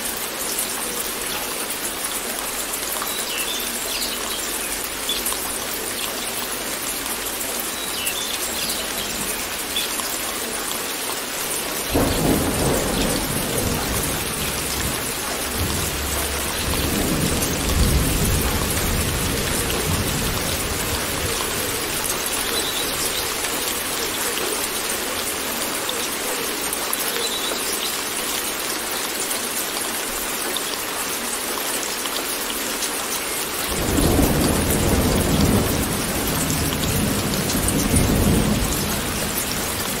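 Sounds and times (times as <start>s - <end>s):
steady rain: 0.0s - 40.0s
rolling thunder: 11.9s - 23.4s.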